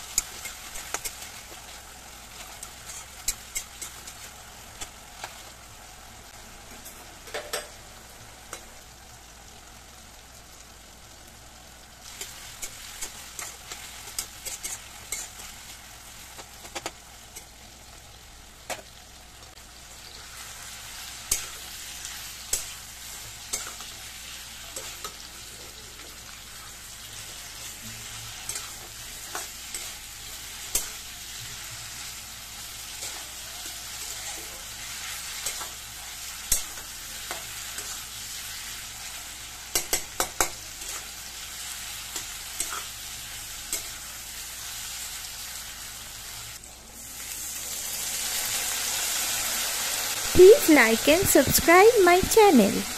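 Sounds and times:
food sizzling in oil: 0.0 - 52.9.

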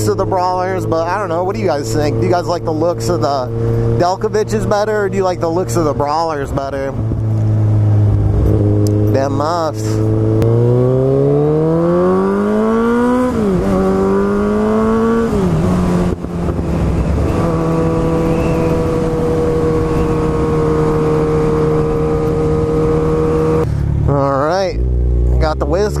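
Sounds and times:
motorcycle engine accelerating: 0.0 - 26.0.

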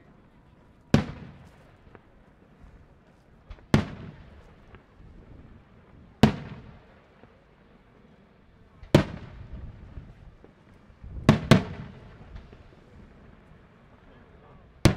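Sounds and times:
faint fireworks pops: 0.0 - 14.9
fireworks bursting with loud bangs: 0.8 - 2.6, 3.4 - 4.9, 5.6 - 7.4, 8.8 - 14.0.

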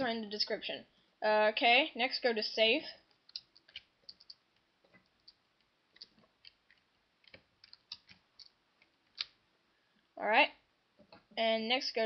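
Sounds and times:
mouse and keyboard clicks: 3.3 - 4.4, 6.0 - 9.4.

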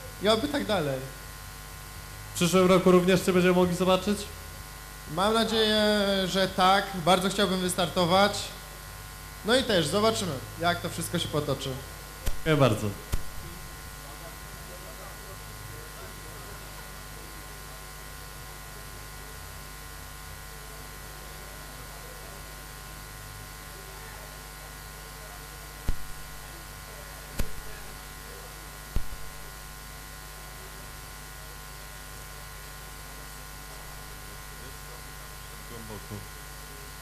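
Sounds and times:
electrical mains hum: 0.0 - 37.0
sharp knocks: 12.2 - 13.7, 25.9 - 26.4, 27.4 - 27.9, 29.0 - 29.5.

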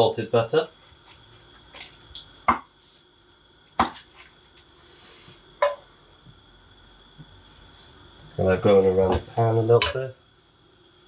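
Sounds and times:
sharp knocks in kitchen: 2.5 - 2.7, 3.8 - 4.0.

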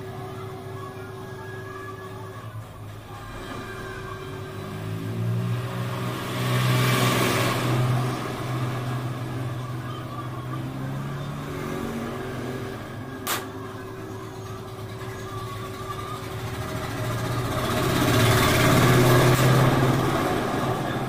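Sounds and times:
vehicle engine running: 0.0 - 21.0
sharp click: 13.2 - 13.5.

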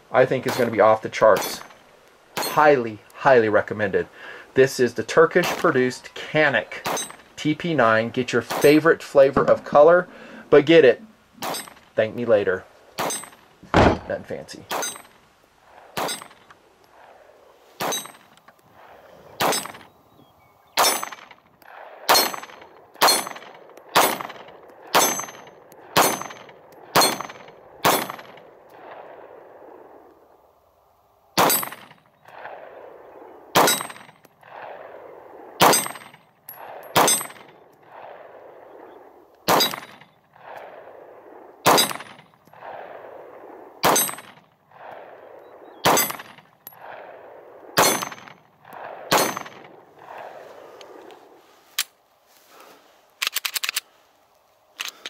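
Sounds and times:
pistol shots: 0.4 - 2.7, 5.4 - 5.9, 6.8 - 7.3, 8.3 - 9.7, 11.4 - 11.9, 13.0 - 17.2, 17.8 - 18.3, 19.3 - 19.9, 20.8 - 29.1, 31.4 - 32.8, 33.6 - 34.9, 35.6 - 38.3, 39.5 - 40.8, 41.6 - 42.9, 43.8 - 50.2
steel target clang: 1.4 - 1.8, 2.4 - 2.7, 6.8 - 7.3, 11.4 - 11.9, 13.0 - 15.2, 16.0 - 16.5, 17.8 - 18.3, 19.4 - 19.8, 22.1 - 23.4, 25.0 - 25.4, 27.0 - 28.2, 33.6 - 34.1, 35.6 - 36.1, 37.0 - 37.5, 39.5 - 40.0, 41.7 - 42.2, 43.8 - 44.4, 45.9 - 46.4, 47.8 - 48.4, 49.1 - 49.6.

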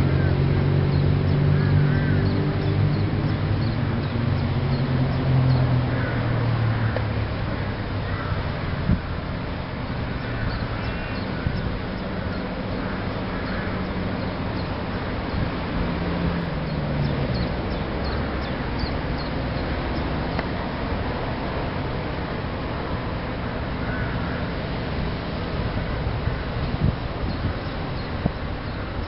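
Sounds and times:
outdoor rumble and hiss: 0.0 - 29.0
faint bird calls: 0.2 - 2.7, 5.9 - 8.5, 10.1 - 15.1, 23.8 - 24.5.

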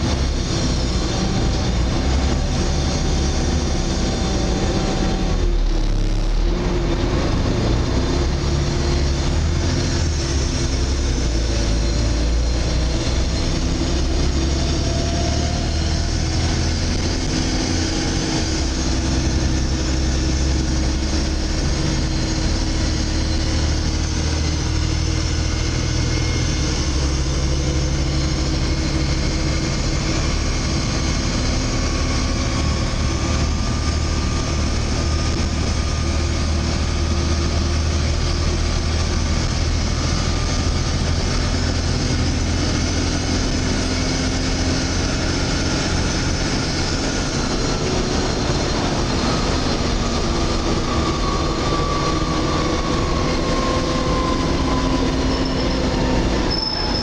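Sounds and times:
bus diesel engine rumbling: 0.0 - 57.0.

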